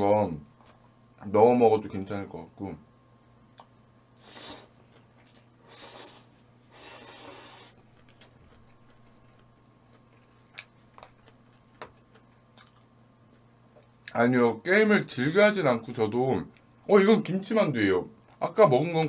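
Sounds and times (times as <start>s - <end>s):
slurping: 4.2s - 7.8s.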